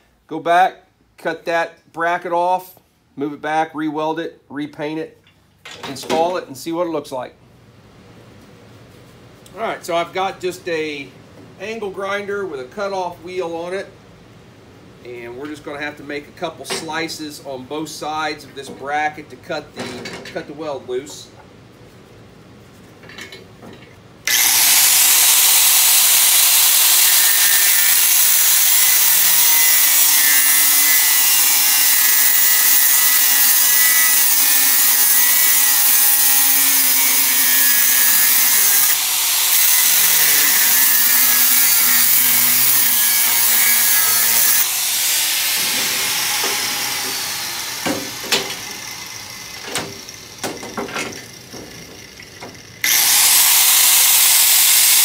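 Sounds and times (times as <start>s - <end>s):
angle grinder cutting metal: 24.3s - 55.0s.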